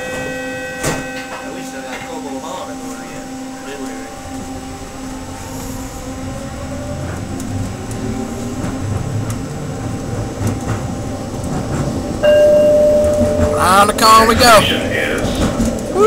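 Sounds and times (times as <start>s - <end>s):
train wheels rumbling on rails: 0.0s - 16.0s
faint motor whine rising: 1.6s - 10.3s.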